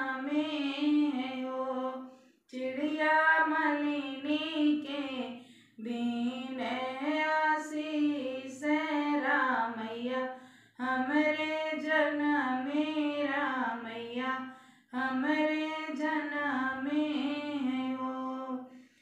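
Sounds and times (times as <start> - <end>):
woman singing unaccompanied: 0.0 - 18.7.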